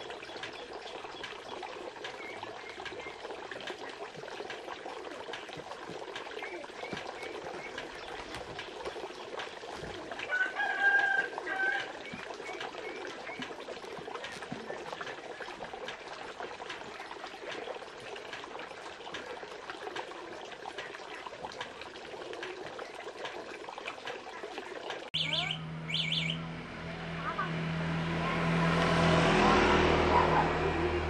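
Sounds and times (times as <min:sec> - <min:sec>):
rooster crowing: 0:10.3 - 0:11.9.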